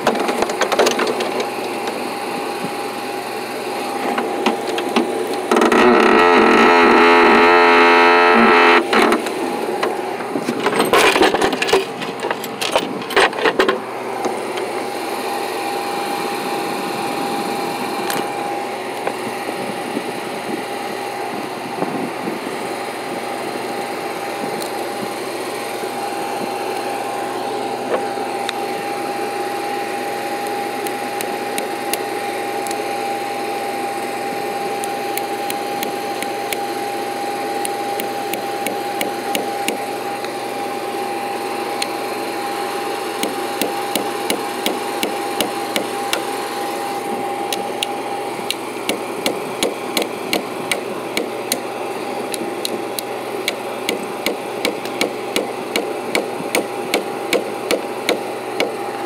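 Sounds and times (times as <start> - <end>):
high steady whine: 0.0 - 59.0
steady engine hum: 0.0 - 59.0
hammer striking nails into wood: 43.2 - 46.2, 48.9 - 51.6, 53.5 - 58.8.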